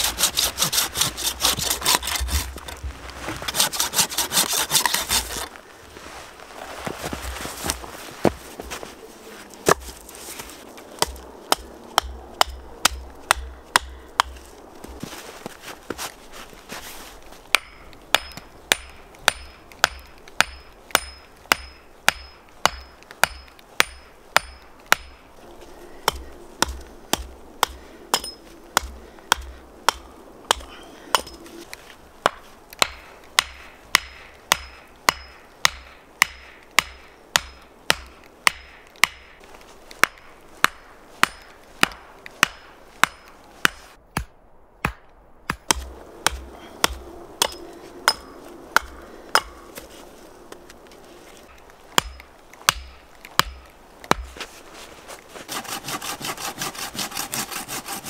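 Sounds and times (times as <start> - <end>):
axe knocking wooden stakes: 11.0 - 14.4, 32.2 - 39.4, 40.0 - 49.9, 52.0 - 54.5.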